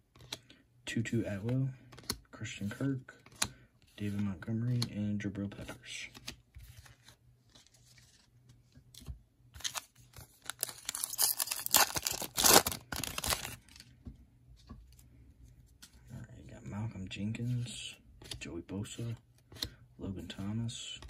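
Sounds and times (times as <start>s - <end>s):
foil wrapper tearing and crinkling: 9.6s - 13.7s.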